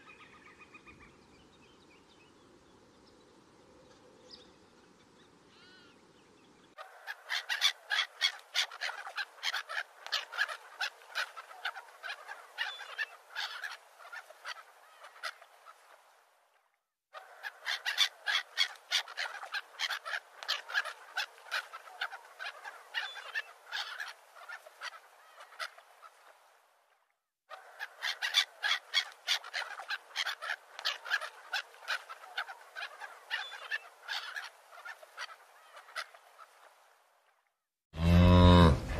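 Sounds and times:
farmyard fowl calling: 5.6 - 5.9, 6.8 - 15.4, 38.0 - 38.9.

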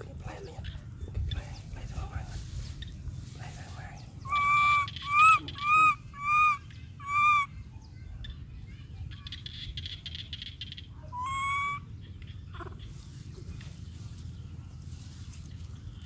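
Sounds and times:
monkey coo calls: 4.2 - 7.5, 11.1 - 13.0.

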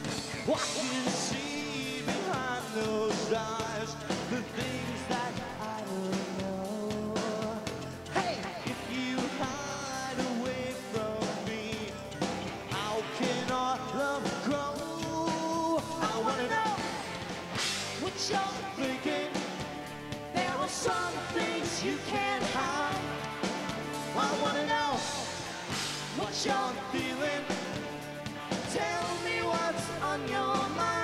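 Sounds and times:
drums: 0.0 - 31.0
electric guitars: 0.0 - 31.0
person singing into microphone: 0.5 - 12.0, 12.7 - 17.1, 18.0 - 19.6, 20.4 - 23.1, 26.1 - 27.8, 28.6 - 31.0.

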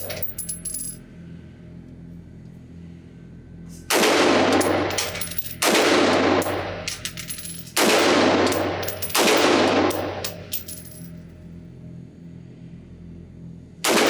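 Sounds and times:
pistol shots echoing indoors: 3.9 - 7.0, 7.7 - 10.4.

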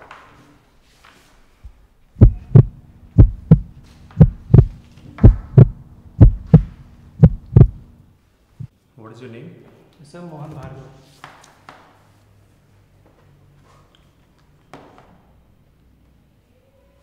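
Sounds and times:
heartbeat: 2.2 - 7.9.

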